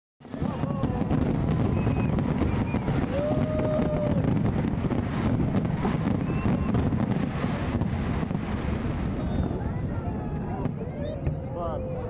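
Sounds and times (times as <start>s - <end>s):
fireworks barrage rumbling: 0.2s - 12.0s
fireworks crackling: 0.2s - 12.0s
steady whistling tone: 1.6s - 3.0s, 6.1s - 6.9s.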